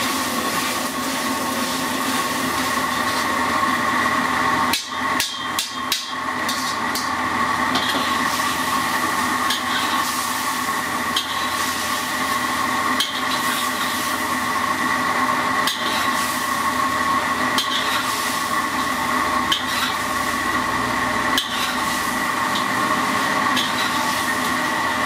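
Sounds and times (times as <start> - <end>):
wok burner rushing: 0.0 - 25.0
metal spatula scraping wok: 5.2 - 7.1, 7.7 - 14.4, 15.6 - 16.8, 17.4 - 20.4, 21.3 - 24.5.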